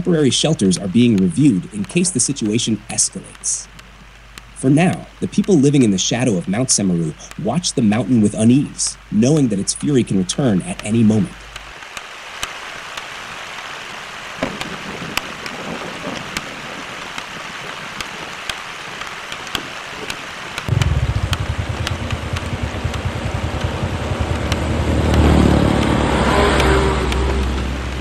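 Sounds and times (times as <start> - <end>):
rain drops ticking: 0.0 - 28.0
rain hiss: 0.0 - 28.0
motorcycle engine running: 20.7 - 28.0.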